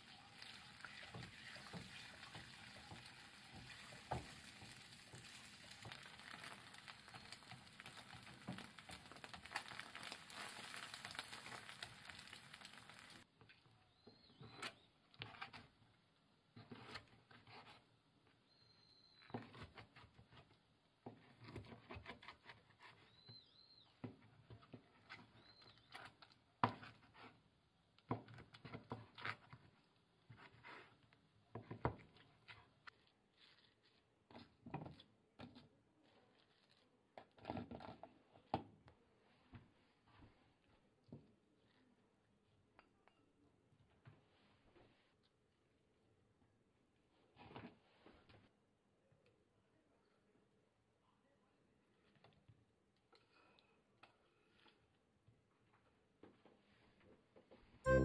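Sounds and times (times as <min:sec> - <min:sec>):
eggs sizzling in frying pan: 0:00.0 - 0:13.3.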